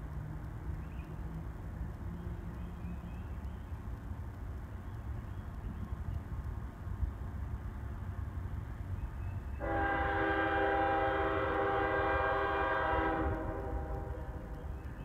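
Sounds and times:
locomotive air horn: 9.6 - 14.4.

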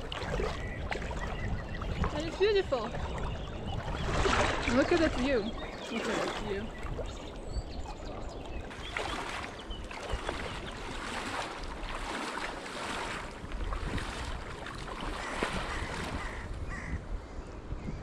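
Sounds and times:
water splashes: 0.0 - 16.6
river water rushing: 8.8 - 15.8.

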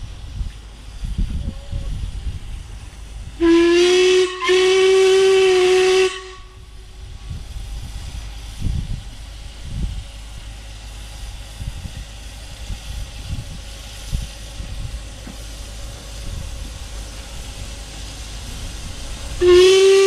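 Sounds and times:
steam whistle blast: 3.4 - 6.7, 19.4 - 20.0
low rumble: 5.4 - 20.0.

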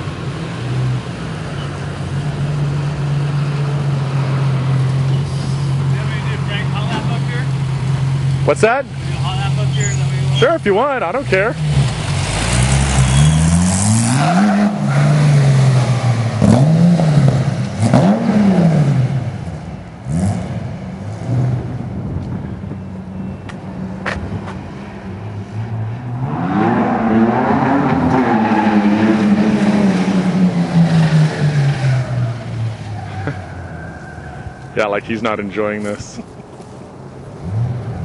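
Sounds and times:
buggy engine revving: 0.7 - 22.0.

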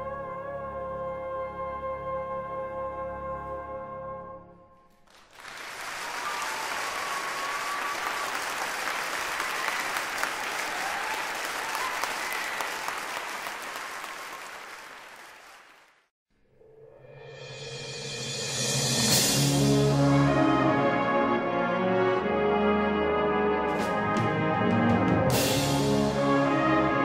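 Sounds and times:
audience applauding: 5.0 - 16.1.

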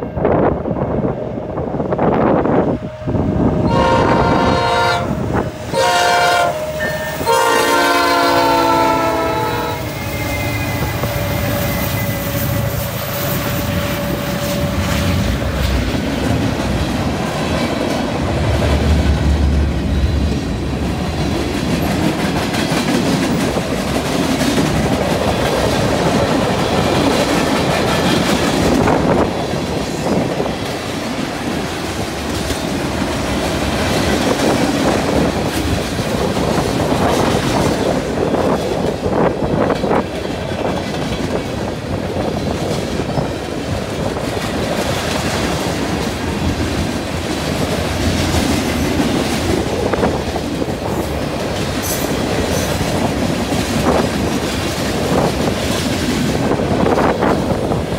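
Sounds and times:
train wheels rumbling and clattering: 0.0 - 57.9
locomotive air horn blasts: 3.6 - 15.1.

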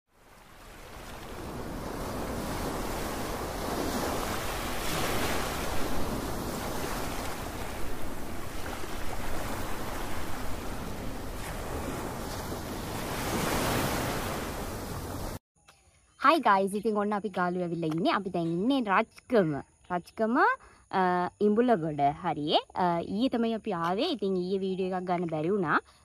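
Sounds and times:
sea waves washing onto beach: 0.1 - 15.4
wind rumbling on microphone: 0.2 - 15.4.

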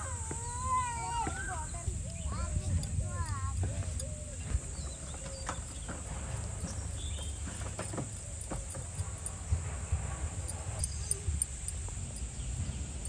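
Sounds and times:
constant low rumble: 0.0 - 13.0
high insect trill: 0.0 - 13.0
faint bird chirps: 0.4 - 9.3.

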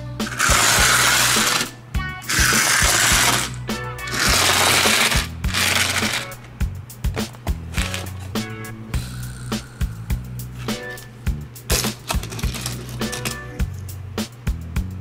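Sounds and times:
background music with beat: 0.0 - 15.0
toy car scraping through gravel: 0.2 - 1.7, 2.3 - 6.3.

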